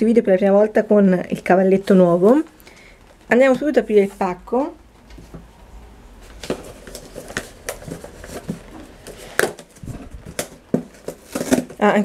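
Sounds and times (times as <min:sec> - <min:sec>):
cardboard box taps and rustles: 0:09.4 - 0:11.8.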